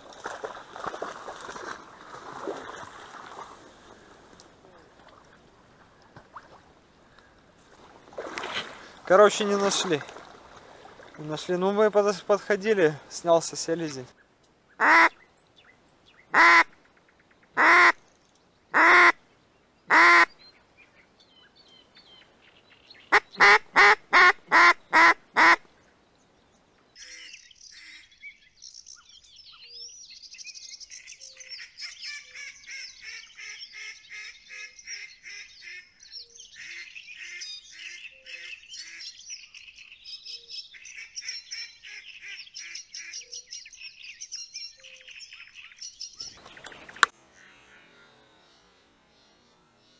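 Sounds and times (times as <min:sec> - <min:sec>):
small birds singing: 0:11.2 - 0:18.8, 0:19.4 - 0:23.6, 0:25.8 - 0:47.7
duck quacking: 0:14.8 - 0:15.1, 0:16.3 - 0:16.7, 0:17.6 - 0:18.0, 0:18.7 - 0:19.2, 0:19.9 - 0:20.3, 0:23.1 - 0:25.6.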